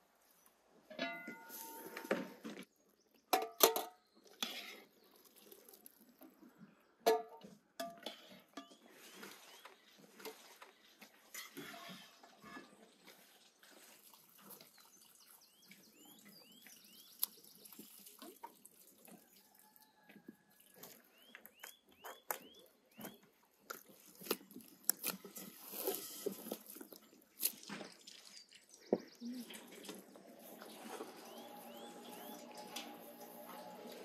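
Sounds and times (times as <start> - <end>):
hands kneading food: 4.4 - 6.6, 20.2 - 29.5
small bird chirping: 14.6 - 18.0, 28.1 - 29.7.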